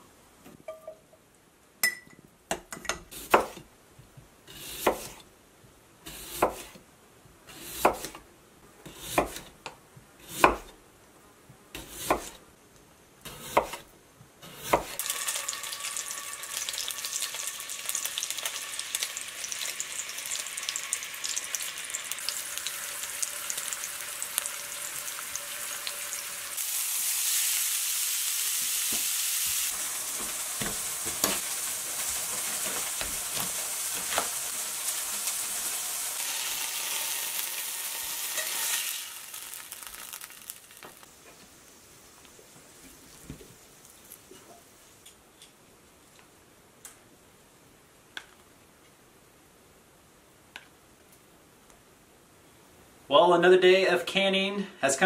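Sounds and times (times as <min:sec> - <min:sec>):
knife chopping on wooden board: 0:03.3 - 0:03.6, 0:07.5 - 0:08.2, 0:08.9 - 0:09.5, 0:10.2 - 0:10.7, 0:11.8 - 0:12.4, 0:13.3 - 0:13.8, 0:14.4 - 0:15.0
food sizzling in a skillet: 0:14.7 - 0:45.0.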